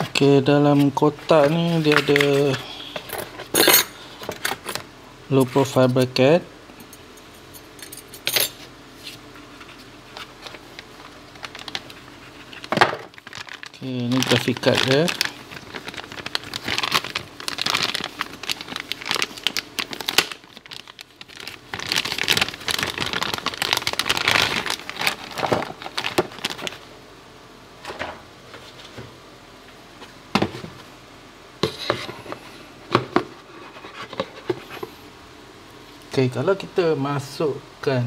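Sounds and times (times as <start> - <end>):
plastic bag crinkling: 10.2 - 26.9.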